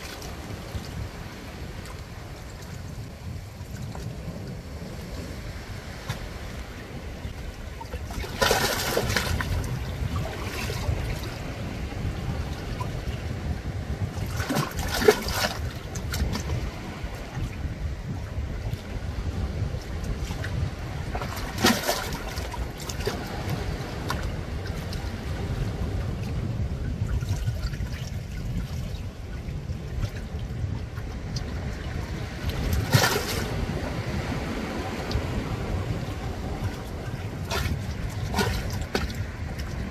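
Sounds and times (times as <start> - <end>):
waves lapping against rocks: 0.0 - 39.9
loud water splashes: 8.1 - 11.3, 21.2 - 23.3, 32.6 - 33.7
steady low rumble: 15.6 - 39.9.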